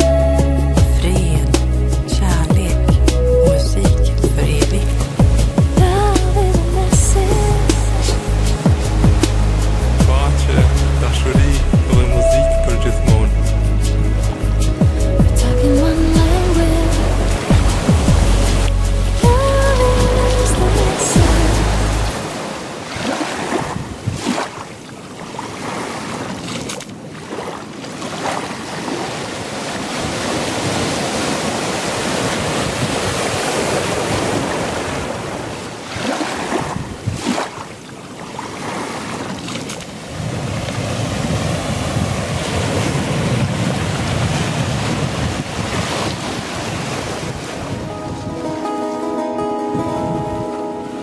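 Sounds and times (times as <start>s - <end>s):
sea waves breaking on beach: 4.4s - 11.8s, 14.3s - 51.0s
wind buffeting microphone: 13.1s - 37.6s, 38.5s - 51.0s.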